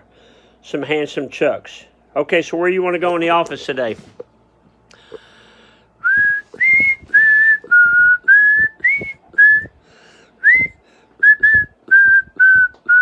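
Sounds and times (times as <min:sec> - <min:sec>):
man whistling a tune: 0:06.0 - 0:09.8, 0:10.4 - 0:13.0.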